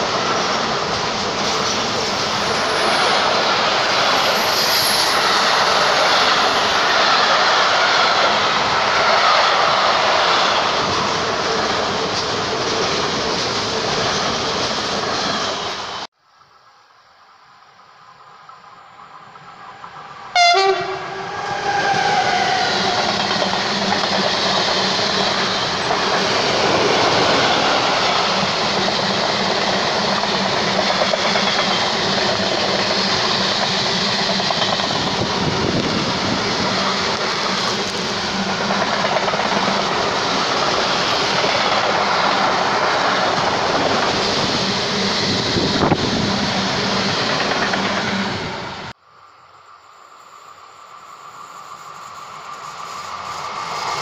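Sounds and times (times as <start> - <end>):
train horn blast: 20.3 - 23.2.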